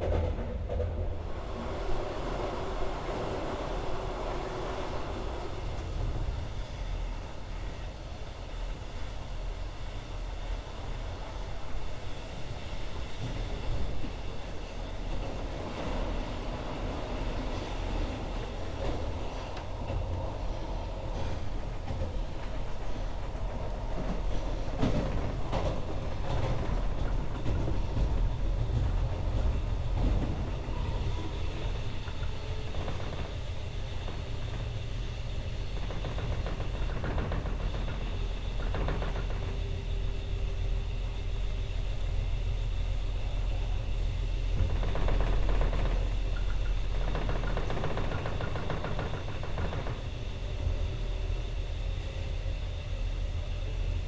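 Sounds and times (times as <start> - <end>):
train wheels rumbling on rails: 0.0 - 54.0
train wheels clacking: 12.8 - 51.3.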